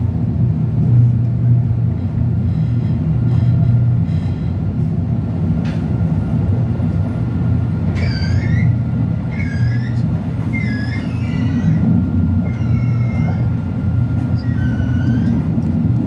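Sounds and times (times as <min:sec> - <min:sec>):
tram rumbling: 0:00.0 - 0:16.0
tram wheels squealing: 0:06.9 - 0:16.0.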